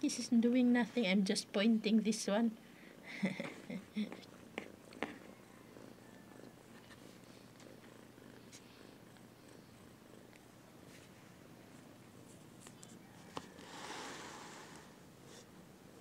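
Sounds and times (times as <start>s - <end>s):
cat purring: 3.0s - 12.0s.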